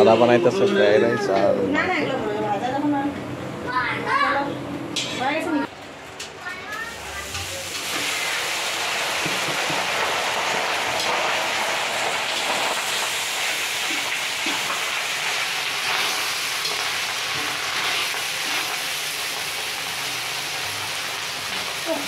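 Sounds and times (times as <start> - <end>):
rice sizzling in hot oil: 6.4 - 22.0
spatula scraping wok: 7.2 - 22.0.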